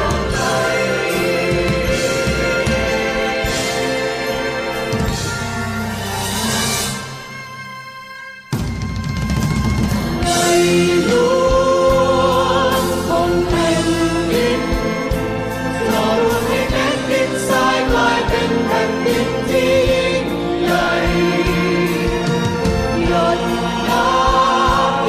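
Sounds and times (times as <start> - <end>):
group of voices singing: 0.0 - 5.5, 10.2 - 25.0
percussion strikes: 0.0 - 7.6
instrumental accompaniment: 0.0 - 25.0.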